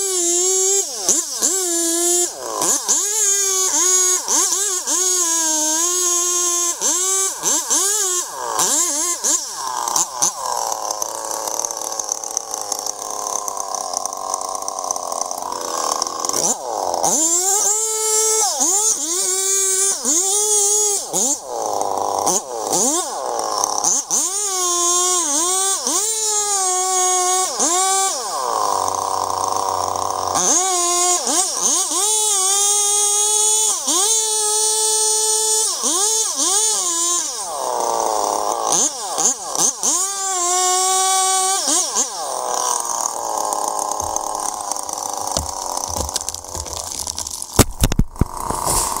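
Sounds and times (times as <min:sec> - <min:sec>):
chainsaw cutting tree trunk: 0:00.0 - 0:49.0
sharp clicks: 0:44.0 - 0:49.0.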